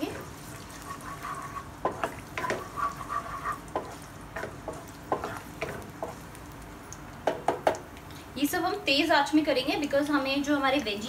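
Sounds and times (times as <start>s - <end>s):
spatula scraping a pan: 0.0s - 6.2s
garlic sizzling in oil: 0.0s - 11.0s.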